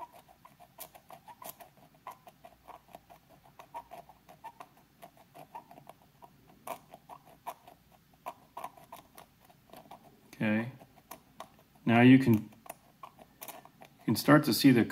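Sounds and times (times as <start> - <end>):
knife blade scratching circuit board: 0.0 - 10.0.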